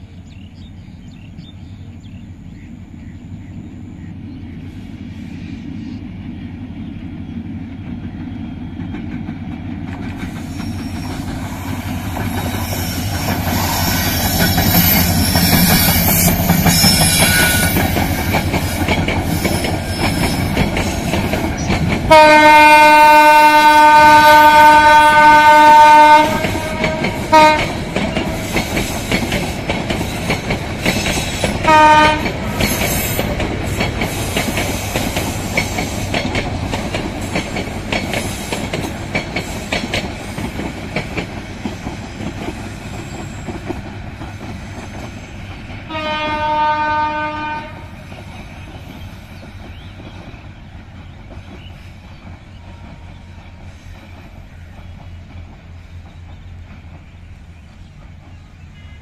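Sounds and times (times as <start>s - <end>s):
train wheels clickety-clack: 4.5s - 59.0s
locomotive horn blasts: 22.1s - 27.8s, 31.7s - 32.6s, 45.9s - 48.0s.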